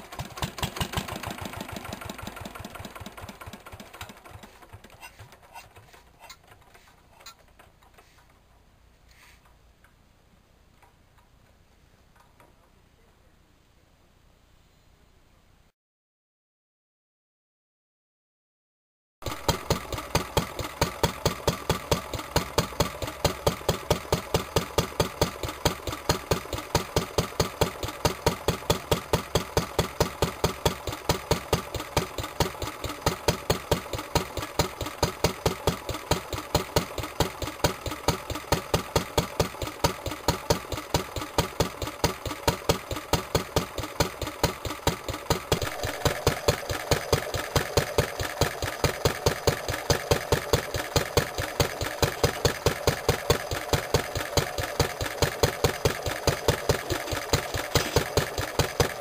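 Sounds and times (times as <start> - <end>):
stationary engine running: 0.0 - 5.6, 19.2 - 59.0
second engine beat: 19.2 - 59.0.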